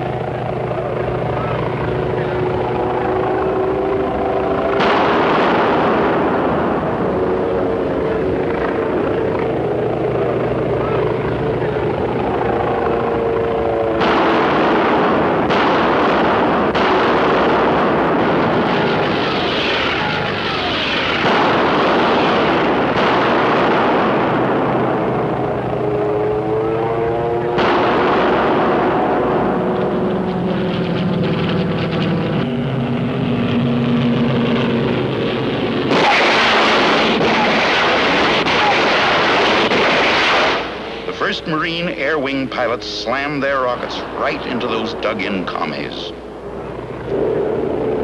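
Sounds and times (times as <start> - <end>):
loud rushing roar: 0.0 - 48.0
propeller aircraft engines droning: 0.0 - 48.0.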